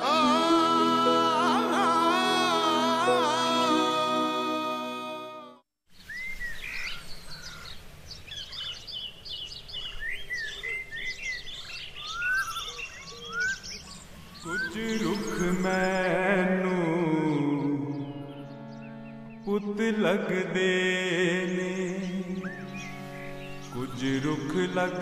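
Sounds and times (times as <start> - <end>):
music: 0.0 - 5.6, 17.0 - 25.0
music with chanting voice: 0.0 - 5.6, 14.7 - 25.0
birds chirping and whistling: 8.3 - 16.1, 21.9 - 24.1.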